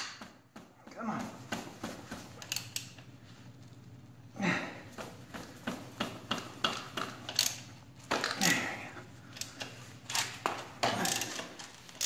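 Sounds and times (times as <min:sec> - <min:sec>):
ratchet wrench clicking: 0:02.4 - 0:03.0, 0:07.2 - 0:08.4, 0:10.9 - 0:12.0.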